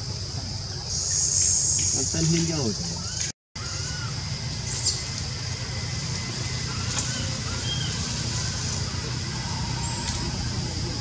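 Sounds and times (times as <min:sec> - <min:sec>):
high-pitched hiss: 0:00.0 - 0:11.0
people talking: 0:02.0 - 0:03.0, 0:08.9 - 0:11.0
short chirping calls: 0:06.2 - 0:11.0.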